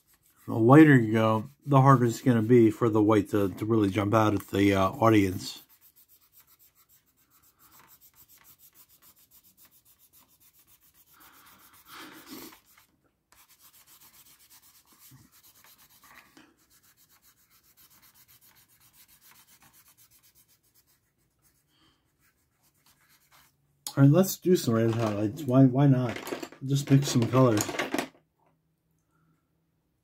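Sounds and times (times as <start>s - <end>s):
pencil scratching on paper: 0.0s - 23.5s.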